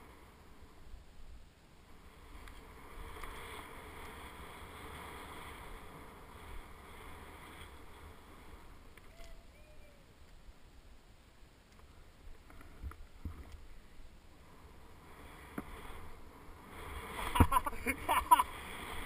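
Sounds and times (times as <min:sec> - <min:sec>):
skis sliding through powder snow: 0:01.7 - 0:09.0, 0:13.1 - 0:19.0.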